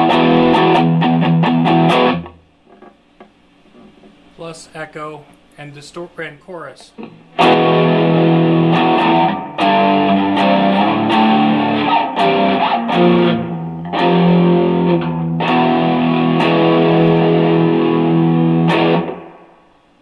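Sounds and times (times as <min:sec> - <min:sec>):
distorted electric guitar chords: 0:00.0 - 0:03.0, 0:07.0 - 0:19.7.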